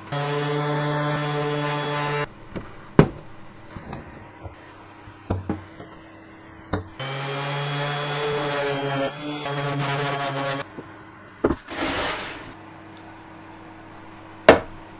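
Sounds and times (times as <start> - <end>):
orbit sander on wood: 0.0 - 2.3, 7.0 - 10.6.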